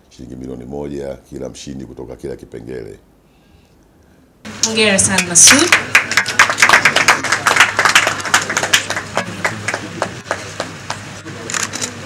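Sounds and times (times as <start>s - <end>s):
audience clapping: 4.6s - 11.6s.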